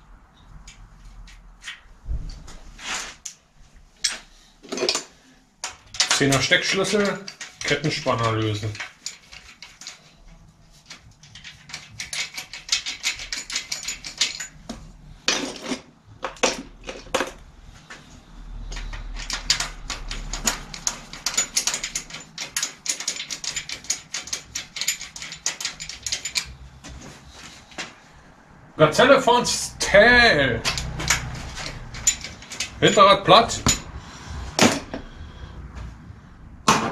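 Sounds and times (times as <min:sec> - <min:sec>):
ratchet wrench clicking: 0:18.6 - 0:26.6.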